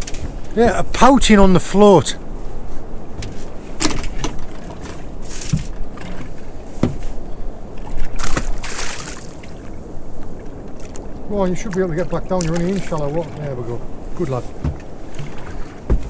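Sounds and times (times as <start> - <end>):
water washing around boat hull: 0.0 - 16.0
fish splashing into water: 7.9 - 9.7.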